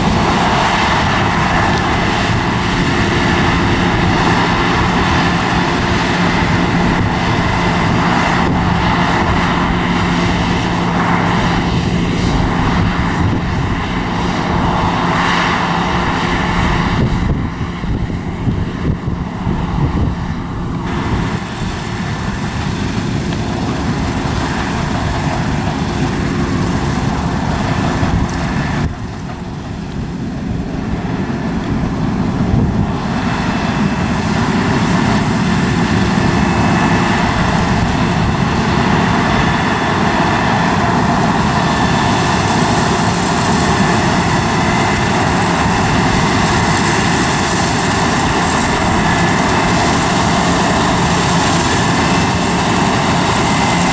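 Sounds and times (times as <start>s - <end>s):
combine harvester engine and threshing: 0.0s - 53.9s.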